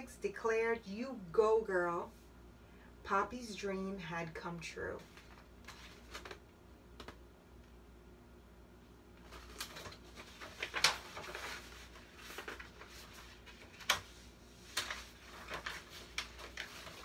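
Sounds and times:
book pages turning: 0:05.0 - 0:06.4, 0:09.2 - 0:17.0
paper rustling and crinkling: 0:05.0 - 0:06.4, 0:09.2 - 0:17.0.

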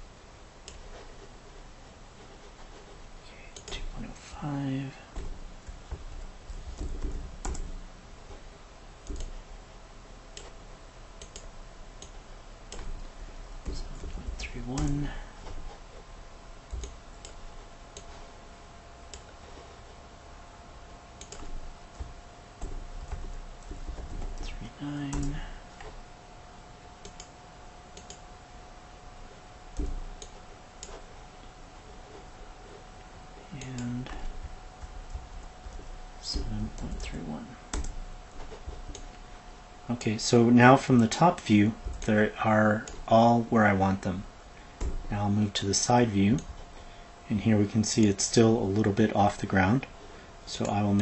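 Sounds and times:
low hum: 0:00.0 - 0:51.0
keyboard keystrokes: 0:06.7 - 0:07.8, 0:09.0 - 0:09.4, 0:11.2 - 0:13.0, 0:16.7 - 0:18.2, 0:21.2 - 0:25.9, 0:27.0 - 0:27.3
mouse and keyboard clicks: 0:09.0 - 0:09.4
mouse clicks: 0:11.2 - 0:12.9.

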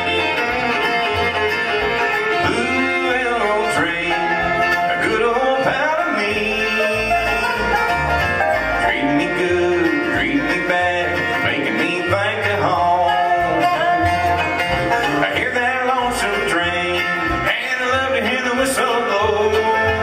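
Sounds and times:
banjo: 0:00.0 - 0:20.0
bluegrass band playing: 0:00.0 - 0:20.0.

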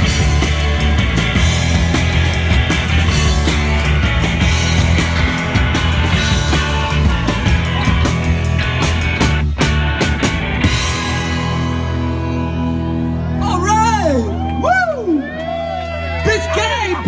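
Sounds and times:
steady drum beat: 0:00.0 - 0:12.1
heavy bass: 0:00.0 - 0:16.3
live rock band playing: 0:00.0 - 0:17.0.

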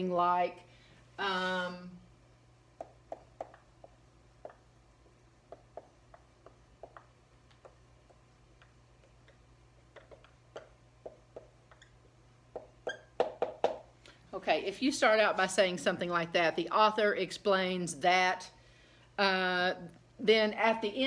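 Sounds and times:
steady low hum: 0:00.0 - 0:21.0
marker ticking on whiteboard: 0:02.8 - 0:04.7, 0:05.5 - 0:13.9.

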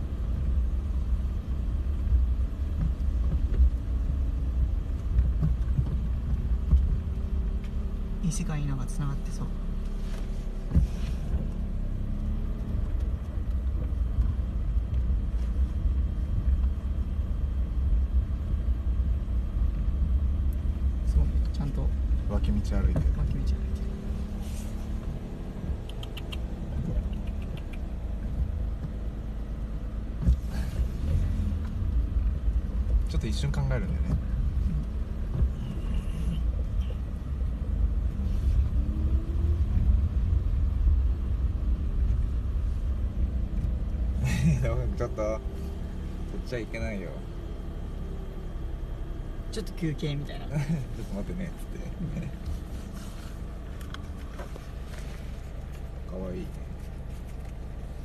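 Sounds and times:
car engine and tyres rumbling: 0:00.0 - 0:58.0
faint short ticks: 0:25.7 - 0:27.9.

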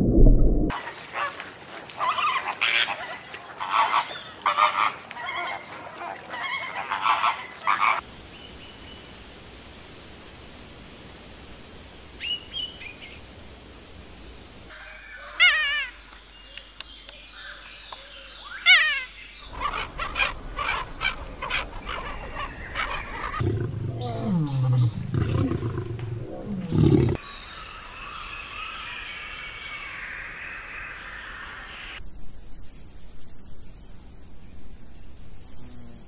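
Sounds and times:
faint hiss: 0:08.0 - 0:18.6, 0:27.2 - 0:36.0
lion growling low: 0:23.4 - 0:27.2.

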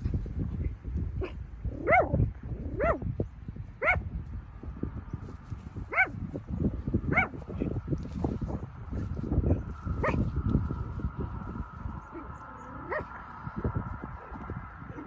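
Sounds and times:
low rumbling noise: 0:00.0 - 0:15.0
small dogs yapping: 0:01.2 - 0:03.1, 0:03.8 - 0:04.0, 0:05.9 - 0:06.2, 0:07.1 - 0:07.7, 0:09.9 - 0:10.3, 0:12.1 - 0:13.2.

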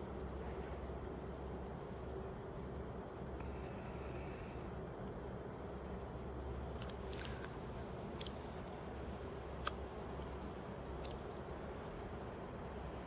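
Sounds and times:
woodpecker high-pitched calls: 0:08.2 - 0:08.8, 0:11.0 - 0:11.5.

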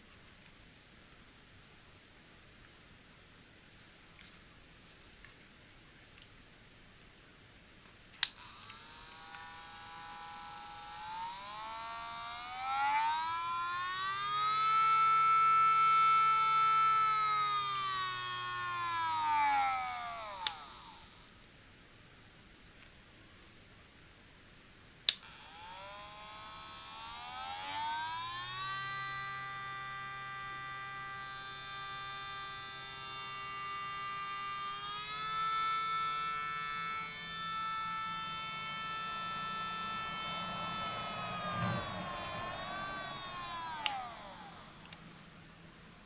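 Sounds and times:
small motor whining: 0:08.2 - 0:21.4, 0:25.1 - 0:45.5.

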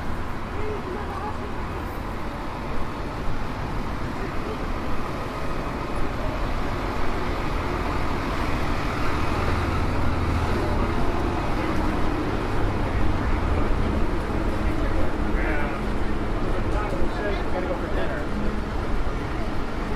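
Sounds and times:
diesel engine idling: 0:00.0 - 0:19.9
street traffic: 0:00.0 - 0:19.9.

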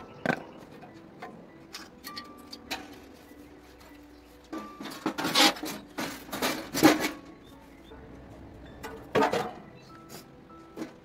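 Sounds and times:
sheet metal clanking and scraping: 0:04.5 - 0:07.5, 0:08.8 - 0:09.9.

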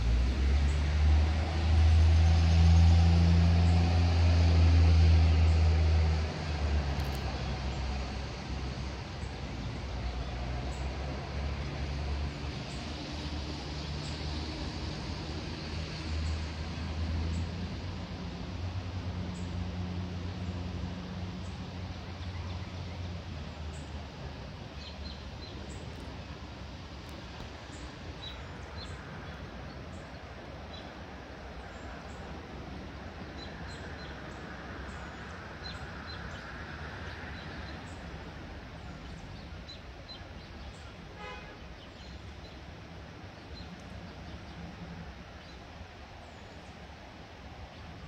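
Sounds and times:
vehicle engine drone: 0:00.0 - 0:48.0
small birds chirping: 0:24.6 - 0:48.0.

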